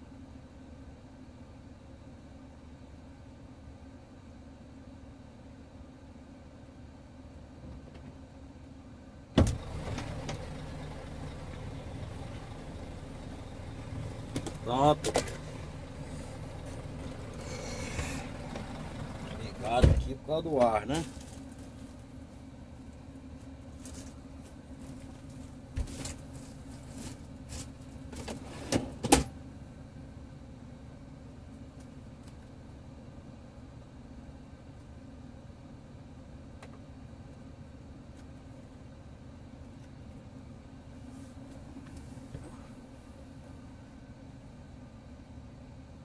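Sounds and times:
truck engine idling: 0:08.6 - 0:28.5.

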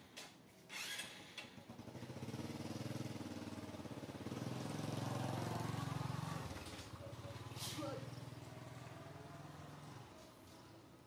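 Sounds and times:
small engine running: 0:00.7 - 0:07.3.

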